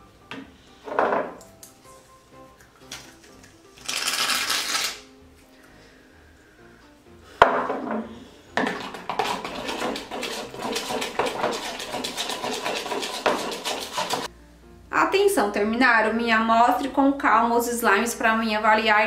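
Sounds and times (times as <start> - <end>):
spatula scraping in bowl: 8.7 - 14.3.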